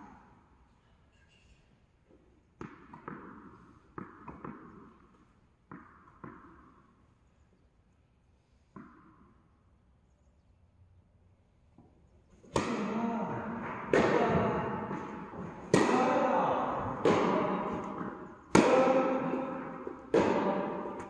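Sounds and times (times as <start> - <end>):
tennis ball struck with rackets: 2.6 - 6.9, 8.7 - 9.4, 11.8 - 21.0.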